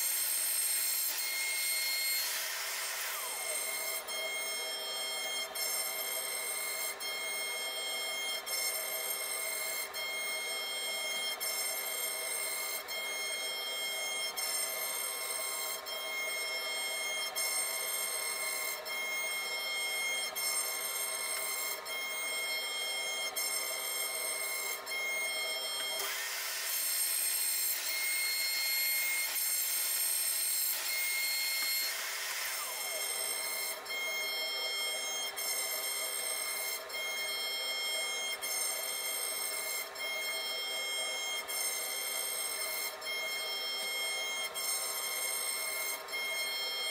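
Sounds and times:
router spindle whining: 0.0 - 46.9.

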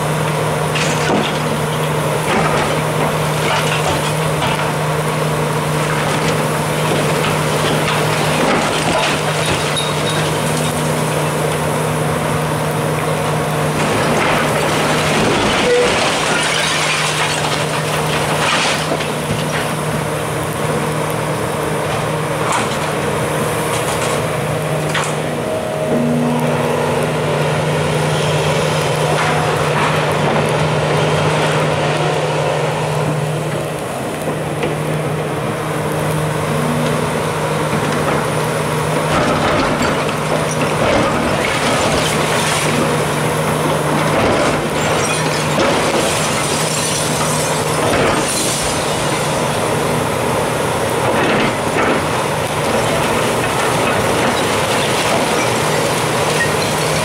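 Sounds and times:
excavator diesel engine running: 0.0 - 57.0
masonry breaking: 13.8 - 19.8.

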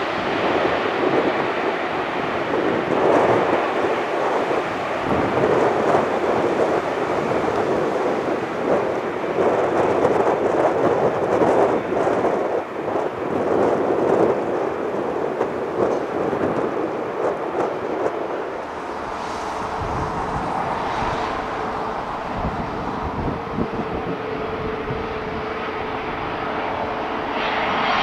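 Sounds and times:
jet engine rushing: 0.0 - 28.0
wind on microphone: 0.0 - 28.0
deep rumble: 15.8 - 27.0
steady hum: 17.2 - 26.2.

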